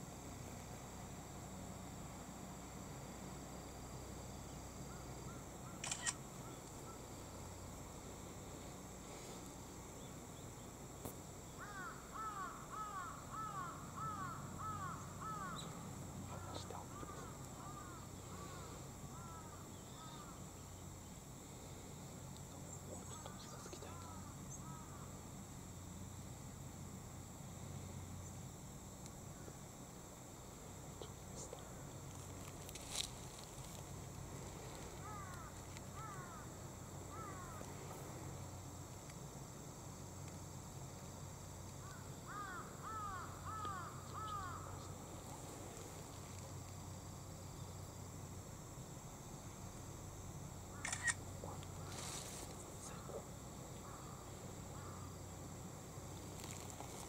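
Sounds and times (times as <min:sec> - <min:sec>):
camera shutter click: 0:05.8 - 0:06.2, 0:50.8 - 0:51.2
crow cawing: 0:11.6 - 0:15.7, 0:16.3 - 0:20.4, 0:23.2 - 0:25.1, 0:35.0 - 0:36.5, 0:37.1 - 0:37.7, 0:41.8 - 0:44.9, 0:54.8 - 0:55.1.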